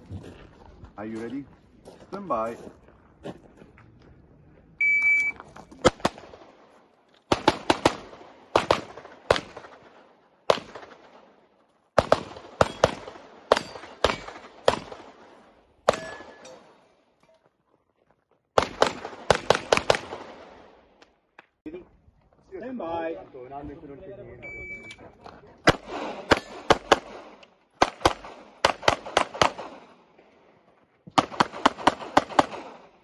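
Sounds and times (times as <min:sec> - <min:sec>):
shot timer beep: 0:04.8 - 0:05.4, 0:24.4 - 0:24.9
handgun shots: 0:15.9 - 0:16.6.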